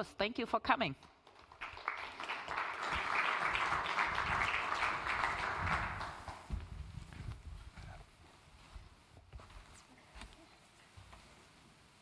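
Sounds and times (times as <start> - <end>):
audience applauding: 1.2 - 6.5.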